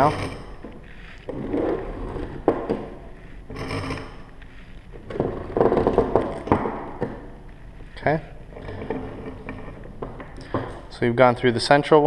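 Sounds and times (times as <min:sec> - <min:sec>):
rope rustling and scraping: 0:03.0 - 0:05.4
sharp knocks: 0:05.6 - 0:07.3.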